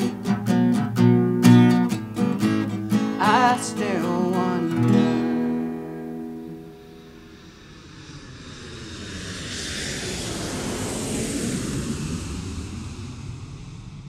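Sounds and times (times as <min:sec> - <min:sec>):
whoosh with low rumble: 0:07.1 - 0:14.0.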